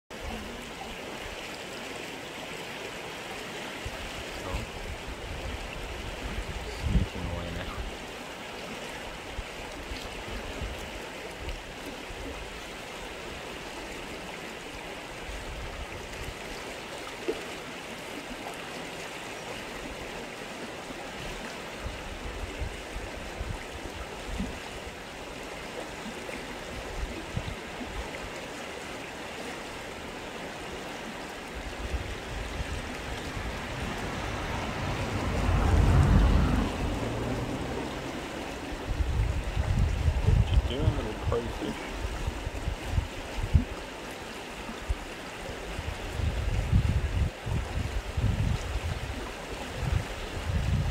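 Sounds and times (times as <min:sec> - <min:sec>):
river flowing over stones: 0:00.1 - 0:50.9
low rumble: 0:32.6 - 0:41.3.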